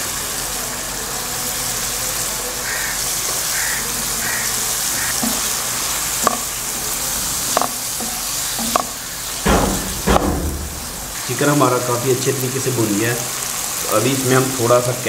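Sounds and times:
chicken sizzling in hot oil: 0.0s - 15.0s
spoon knocking against pan: 5.0s - 5.5s, 6.2s - 6.5s, 7.5s - 10.9s
spoon stirring: 7.4s - 9.0s.

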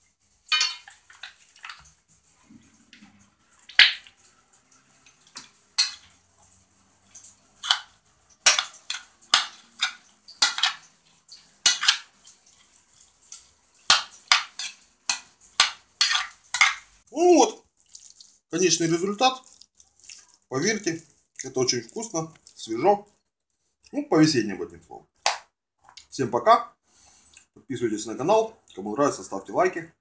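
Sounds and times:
utensil clinking against bowl: 0.5s - 1.8s, 5.4s - 6.1s, 8.5s - 10.9s, 13.9s - 16.8s.

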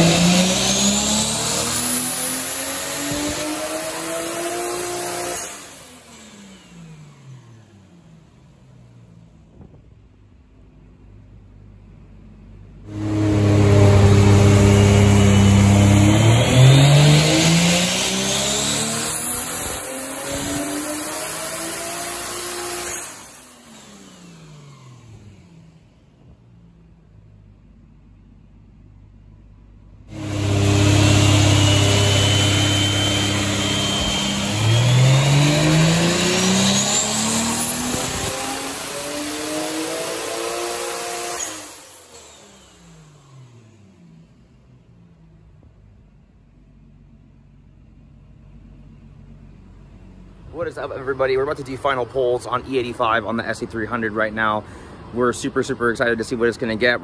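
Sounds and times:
turbo whine: 0.0s - 8.0s, 12.9s - 26.3s, 30.1s - 43.9s
car engine revving under load: 0.0s - 10.1s, 11.8s - 27.8s, 29.8s - 55.1s.

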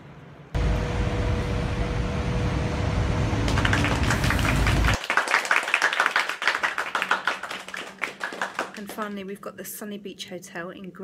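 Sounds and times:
steady hum: 0.1s - 5.0s
city street traffic: 0.6s - 5.0s
hand clapping: 3.5s - 9.2s.

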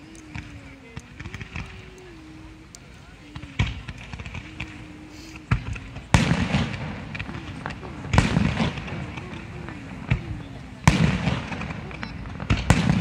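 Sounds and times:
fireworks bangs with echo: 3.4s - 13.0s.

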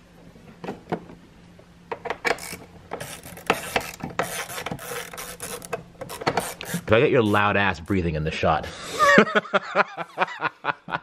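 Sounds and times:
screwdriver clicking and scraping: 2.3s - 6.9s.

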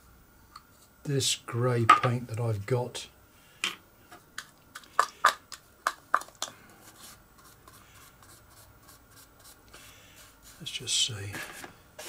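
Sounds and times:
faint rubbing and scraping: 6.6s - 12.0s.

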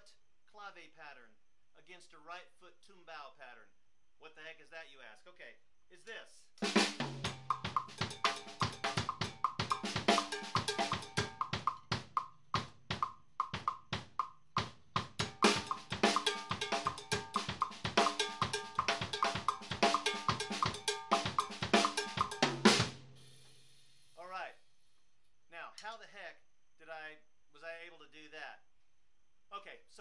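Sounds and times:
bass drum pattern: 6.6s - 23.2s
sticks on snare and toms: 6.6s - 23.2s.

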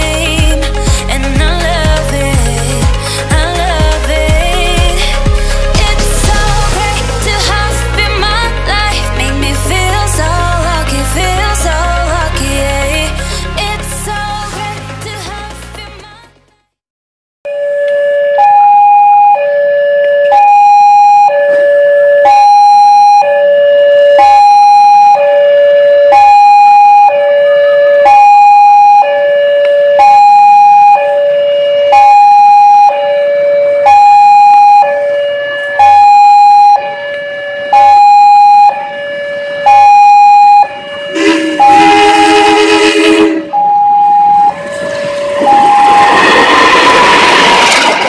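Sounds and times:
level crossing two-tone alarm: 17.5s - 48.0s.

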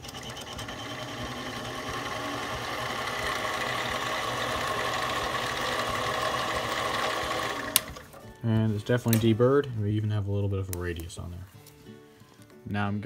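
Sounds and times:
lathe motor and gear whine: 0.0s - 8.0s
lathe switch click: 7.7s - 8.0s.

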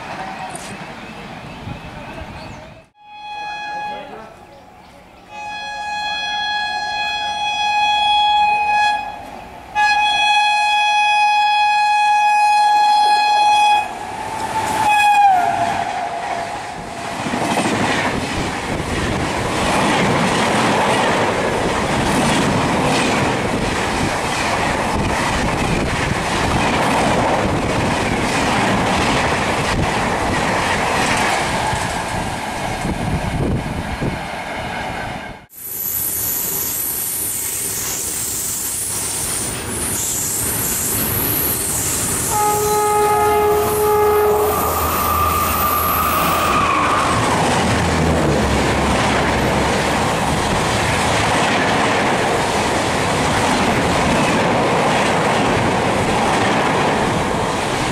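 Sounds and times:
express train rushing past: 0.0s - 57.9s
train horn blasts: 3.0s - 4.4s, 5.3s - 16.7s, 42.2s - 47.3s.

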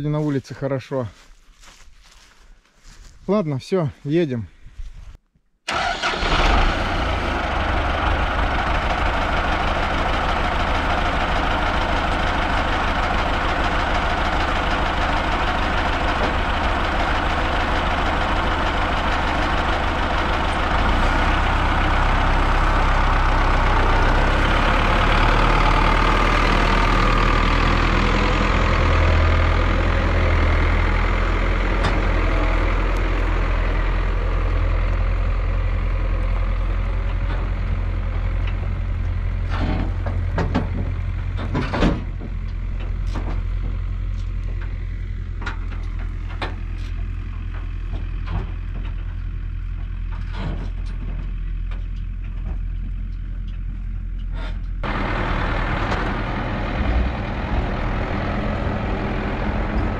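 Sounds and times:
tractor diesel engine running: 5.7s - 59.9s.

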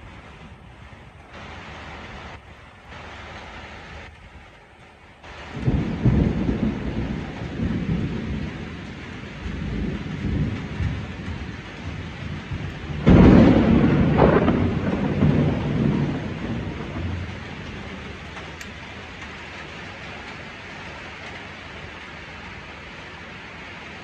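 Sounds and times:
steady rain: 0.0s - 24.0s
thunder clap: 5.2s - 20.4s
thunder rumbling: 5.2s - 22.8s.

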